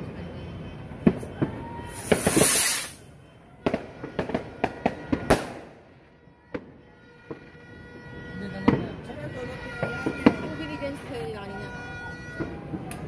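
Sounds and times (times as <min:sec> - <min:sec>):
firecracker bangs: 0:01.0 - 0:03.0, 0:03.6 - 0:07.6, 0:08.6 - 0:11.0
firework hissing burst: 0:01.9 - 0:03.0.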